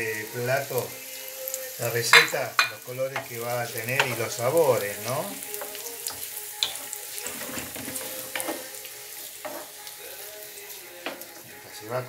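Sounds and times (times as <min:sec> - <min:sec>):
vegetables sizzling in oil: 0:00.0 - 0:12.0
wooden spatula scraping a pan: 0:03.2 - 0:10.2.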